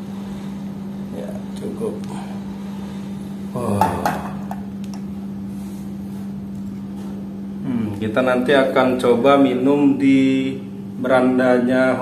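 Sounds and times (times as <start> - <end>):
steady low hum: 0.0 - 12.0
pot knocking on tiled floor: 3.8 - 4.7.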